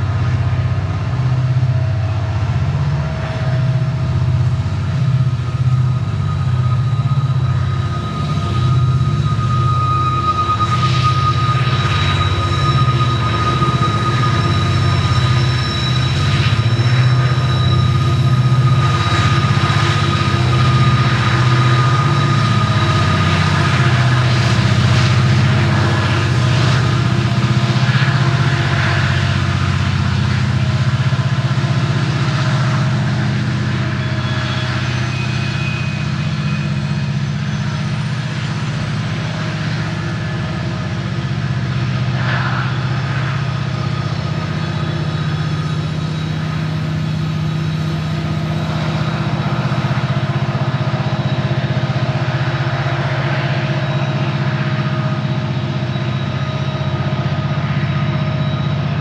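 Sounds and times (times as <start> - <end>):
diesel locomotive engine drone: 0.0 - 59.0
thin high whine: 0.0 - 59.0.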